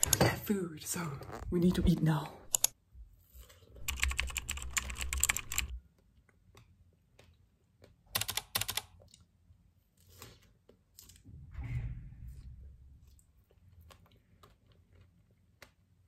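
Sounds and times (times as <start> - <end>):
keyboard typing clicks: 2.5 - 2.8, 3.8 - 5.8, 8.1 - 9.0.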